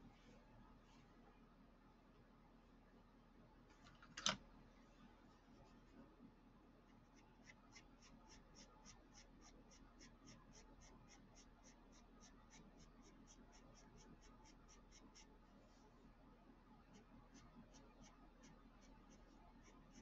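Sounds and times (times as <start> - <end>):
pencil scratching on paper: 7.0 - 15.4, 16.9 - 20.0.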